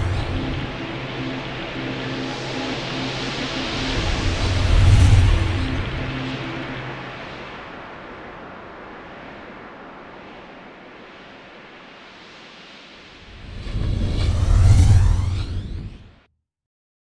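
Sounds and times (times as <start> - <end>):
low hum: 0.0 - 8.0, 13.3 - 16.2
hissing wash of noise: 0.0 - 16.2.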